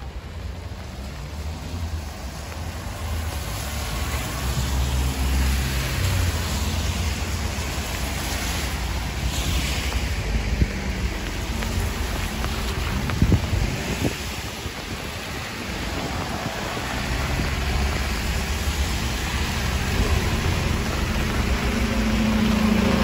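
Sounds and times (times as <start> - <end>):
car tyres swishing on wet road: 0.0 - 23.0
steady rain hiss: 0.0 - 23.0
low rumble: 15.6 - 23.0.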